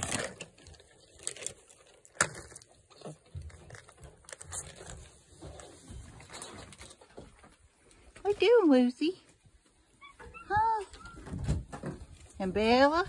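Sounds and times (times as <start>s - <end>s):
plastic bag crinkling: 0.0s - 5.2s.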